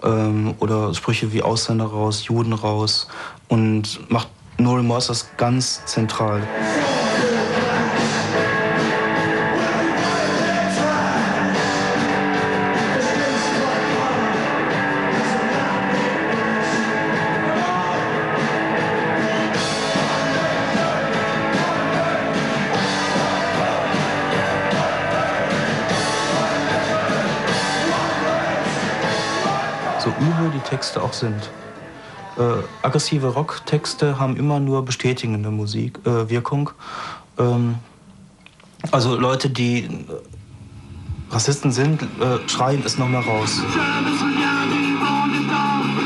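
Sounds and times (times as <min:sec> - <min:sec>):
rock song with guitars: 0:06.4 - 0:32.8, 0:42.1 - 0:46.0.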